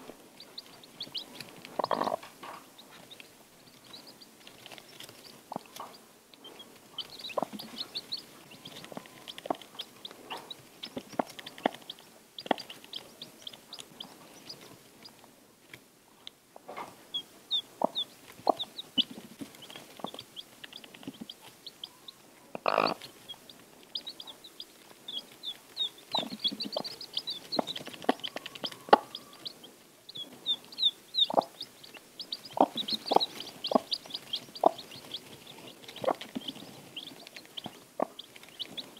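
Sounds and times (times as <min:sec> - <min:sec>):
chicks peeping: 0:00.0 - 0:15.8, 0:16.6 - 0:38.9
hen clucking: 0:00.4 - 0:15.0, 0:16.6 - 0:38.9.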